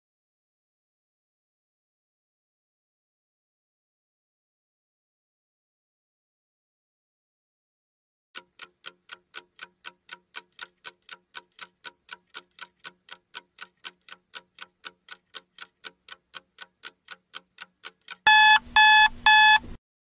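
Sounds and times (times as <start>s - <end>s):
clock ticking: 8.4s - 19.7s
loud electronic alarm beep: 18.3s - 19.6s.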